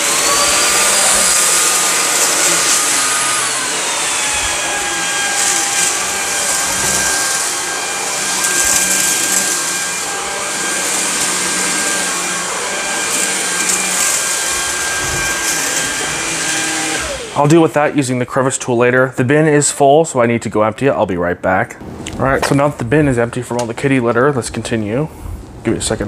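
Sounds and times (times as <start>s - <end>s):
vacuum cleaner motor whine: 0.0s - 18.4s.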